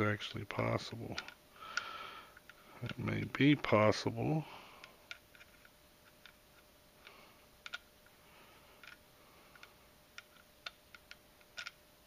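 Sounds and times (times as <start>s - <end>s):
small metal parts clicking: 8.8s - 11.8s.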